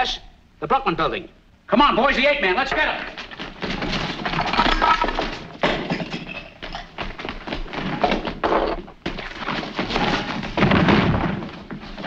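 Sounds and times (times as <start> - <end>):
hurried footsteps: 2.7 - 12.0
knocks and thumps on floor: 2.7 - 12.0.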